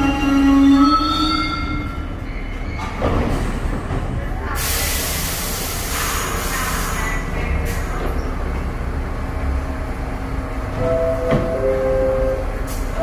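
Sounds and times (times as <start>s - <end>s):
train brake and wheel squeal: 0.0s - 3.4s.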